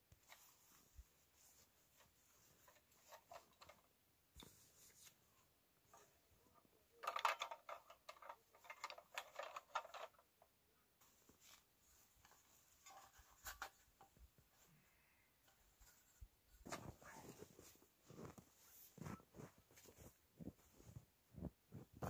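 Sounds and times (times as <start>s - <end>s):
fabric rustling and crinkling: 0.1s - 6.3s, 11.0s - 22.0s.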